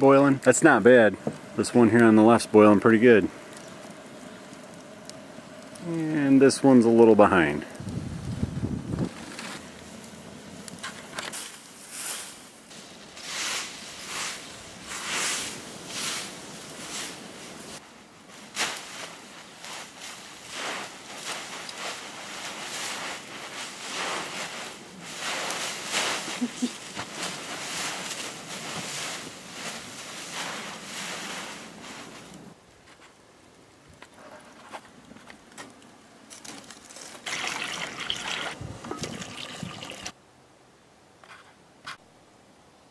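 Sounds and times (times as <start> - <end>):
rake swishing through leaves: 10.8 - 32.6
dog scrambling through leaves: 13.2 - 32.6.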